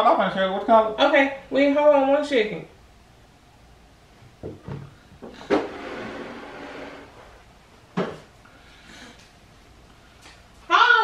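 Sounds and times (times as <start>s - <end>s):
knocks and thuds: 4.4s - 5.7s
rustling scrape: 5.4s - 7.5s.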